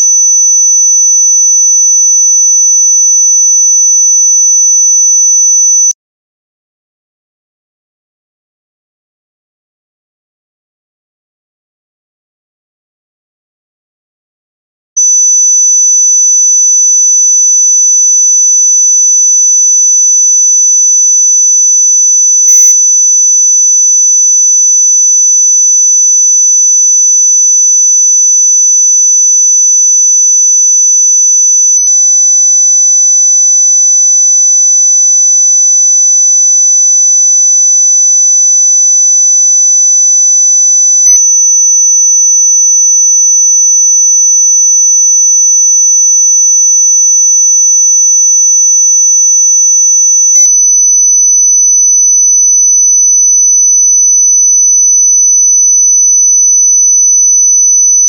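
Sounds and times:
high-pitched sine tone whistle: 31.0s - 58.0s.

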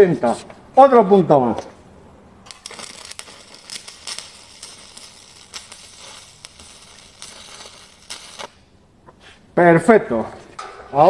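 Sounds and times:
welding arc crackling: 2.4s - 8.8s.

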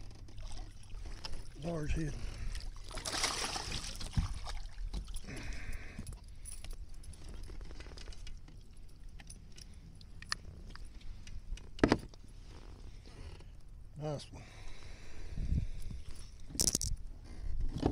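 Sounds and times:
fish splashing beside kayak: 0.1s - 6.0s
clicks and rattles of fishing lure: 16.5s - 17.0s.

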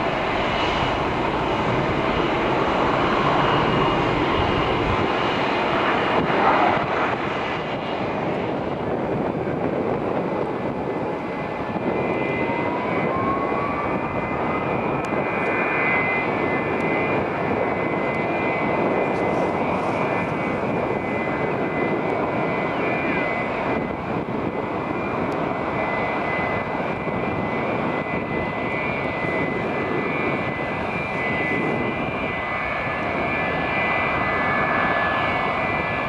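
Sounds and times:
jet engines whining: 0.0s - 36.0s.

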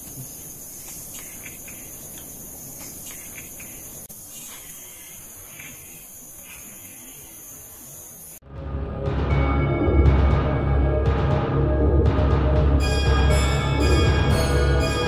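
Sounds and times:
crickets shrilling: 0.0s - 8.4s.

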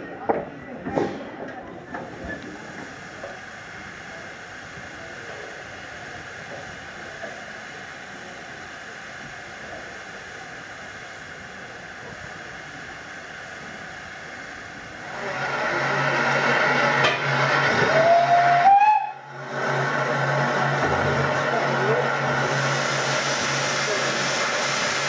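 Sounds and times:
steam hissing: 1.9s - 25.0s
steam whistle blast: 17.8s - 19.3s.

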